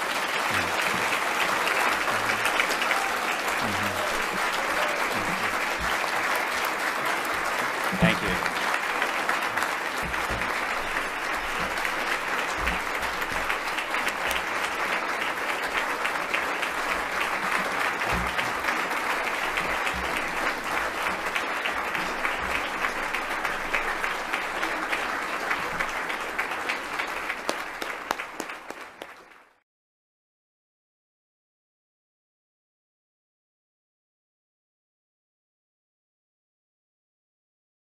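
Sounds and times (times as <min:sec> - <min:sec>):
audience applauding: 0:00.0 - 0:29.6.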